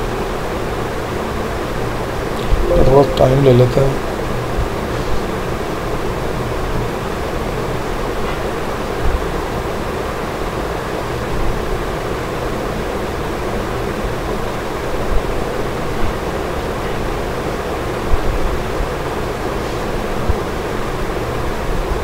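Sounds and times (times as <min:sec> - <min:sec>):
microphone hiss and hum: 0:02.4 - 0:04.0.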